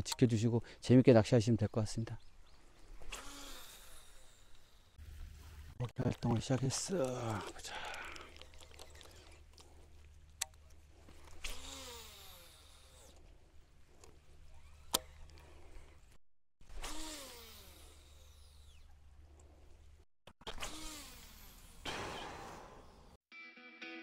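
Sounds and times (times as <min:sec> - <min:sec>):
fishing line whirring off reel: 0:02.6 - 0:05.5, 0:08.2 - 0:13.3, 0:14.0 - 0:19.1, 0:20.4 - 0:23.0.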